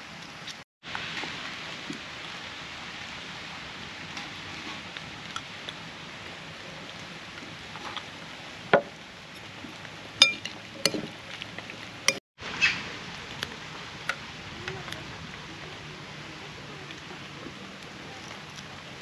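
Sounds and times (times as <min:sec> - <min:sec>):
ringing metallic clink: 0:10.2 - 0:11.0
utensils clinking together: 0:10.2 - 0:11.1.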